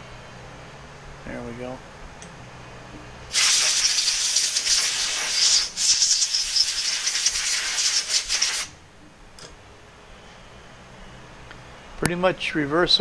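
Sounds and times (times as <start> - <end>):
compressed-air blow gun hissing: 3.3 - 8.7.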